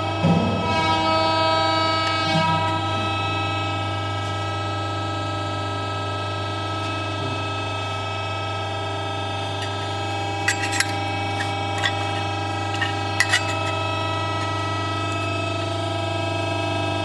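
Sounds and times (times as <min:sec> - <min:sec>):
hydraulic pump and motor hum: 0:00.0 - 0:17.0
metallic clinks: 0:09.6 - 0:15.2.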